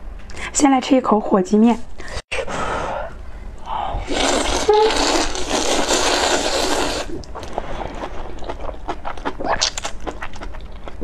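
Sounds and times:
loud noodle slurp: 0:04.0 - 0:07.3.

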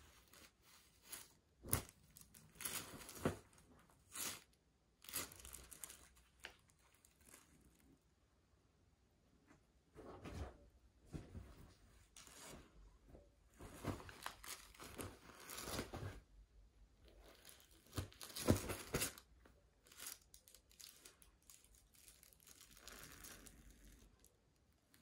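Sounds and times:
bedsheets rustling: 0:00.0 - 0:04.4, 0:09.9 - 0:16.4, 0:17.8 - 0:19.2.

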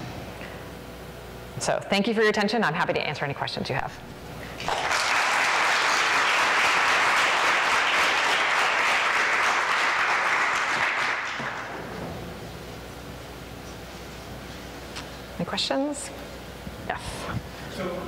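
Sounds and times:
audience applauding: 0:04.6 - 0:11.8.

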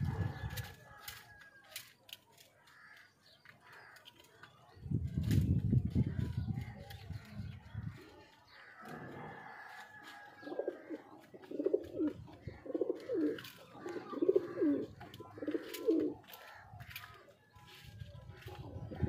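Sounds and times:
pigeon cooing: 0:08.8 - 0:16.3.

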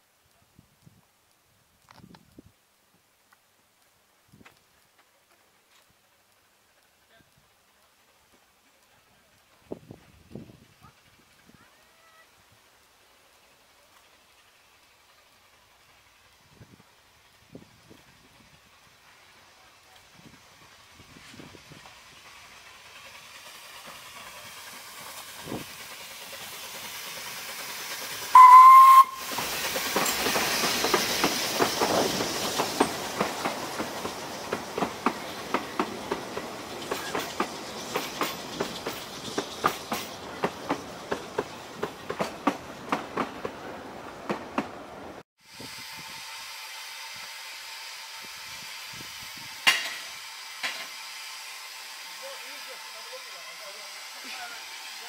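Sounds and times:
steam locomotive hissing: 0:05.4 - 0:55.0
steam train whistle: 0:28.3 - 0:29.4, 0:45.5 - 0:55.0
wheels clicking over rail joints: 0:29.2 - 0:45.2.

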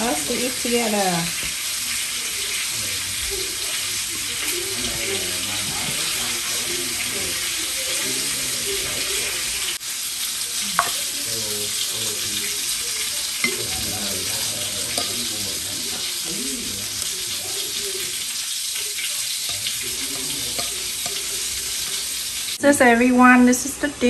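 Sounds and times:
pan sizzling: 0:00.0 - 0:24.0
chopsticks clicking against pan: 0:19.5 - 0:21.3.

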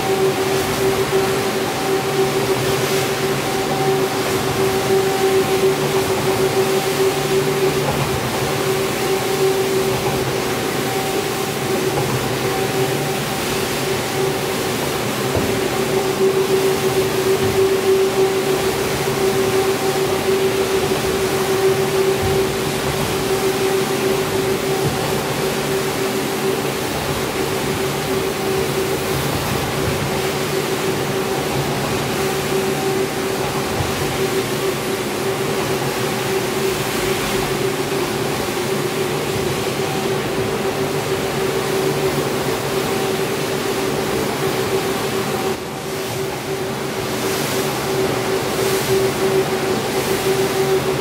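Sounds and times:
floor scrubber motor hum: 0:00.0 - 0:36.8.

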